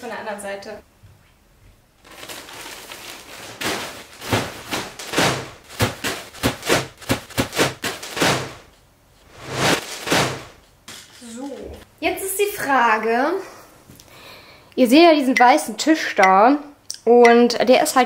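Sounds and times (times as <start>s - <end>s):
plastic film crinkling: 2.0s - 8.8s
knocks: 4.3s - 8.6s.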